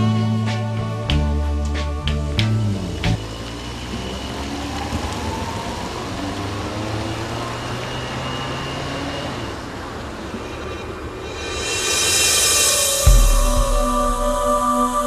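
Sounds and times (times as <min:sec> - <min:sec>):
faint engine tones: 0:00.0 - 0:12.0
road traffic rushing: 0:00.0 - 0:15.0
low hum: 0:07.0 - 0:15.0.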